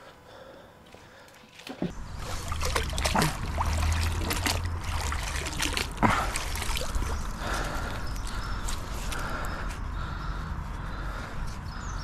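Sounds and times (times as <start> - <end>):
water trickling and splashing: 1.1 - 9.1
short sharp splashes: 1.5 - 7.2.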